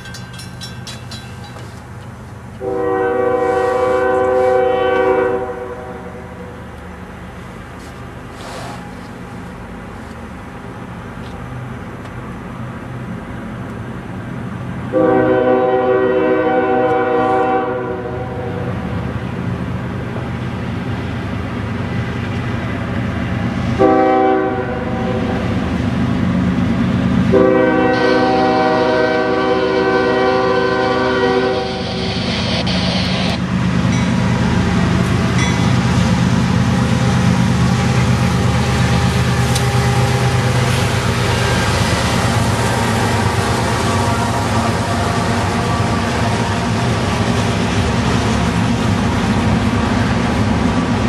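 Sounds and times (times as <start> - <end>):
diesel locomotive engines working: 0.0 - 51.0
locomotive air horn blasts: 2.6 - 6.5, 14.9 - 18.7, 23.8 - 25.4, 27.3 - 32.0.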